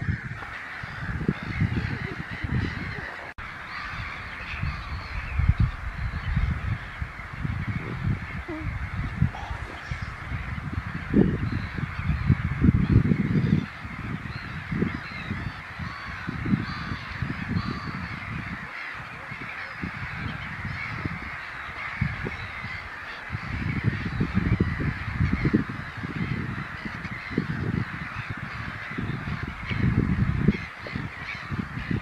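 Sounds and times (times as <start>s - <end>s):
waterbirds calling: 0.0s - 32.0s
wind rumbling on microphone: 0.0s - 32.0s.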